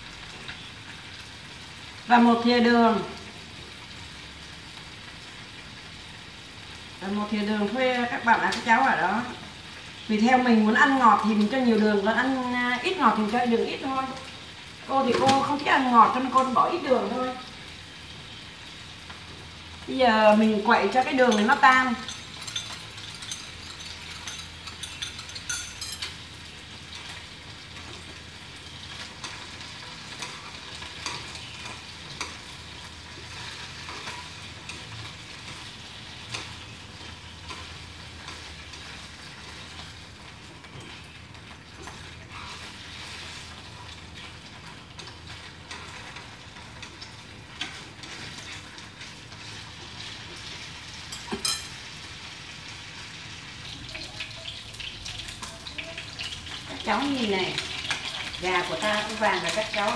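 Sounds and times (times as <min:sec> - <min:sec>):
chicken frying in oil: 0:00.0 - 0:59.9
spoon clinking in ceramic bowl: 0:22.0 - 0:26.2, 0:51.1 - 0:51.8.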